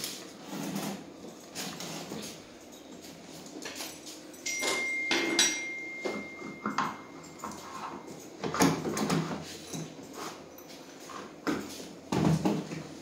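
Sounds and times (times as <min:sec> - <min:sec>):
thin high tone: 0:04.1 - 0:08.4.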